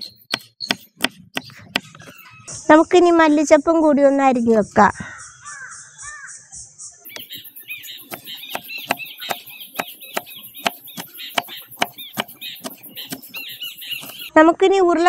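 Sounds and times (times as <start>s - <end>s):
knife chopping on wooden board: 0.0s - 2.1s, 8.0s - 14.3s
birds chirping: 0.0s - 3.6s, 4.6s - 14.4s.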